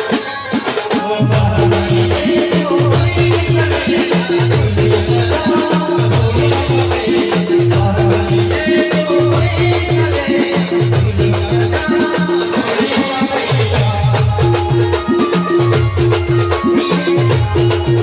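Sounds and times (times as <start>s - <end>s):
electronic drum beat: 0.0s - 18.0s.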